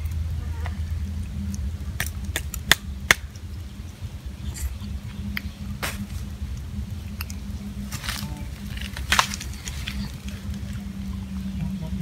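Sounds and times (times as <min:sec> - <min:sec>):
low steady hum: 0:00.0 - 0:12.0
crab shells cracking: 0:02.0 - 0:03.3.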